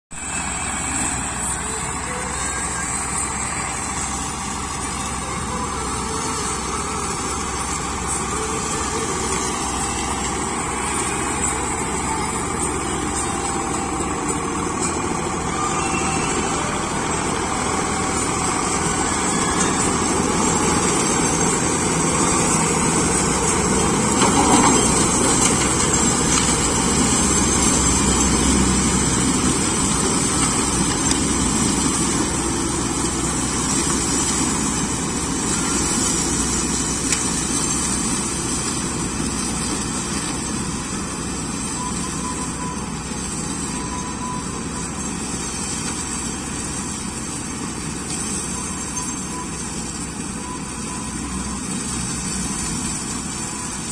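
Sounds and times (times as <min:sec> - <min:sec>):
cutter shredding dry leaves: 0:00.1 - 0:53.9
tractor diesel engine under load: 0:00.1 - 0:53.9.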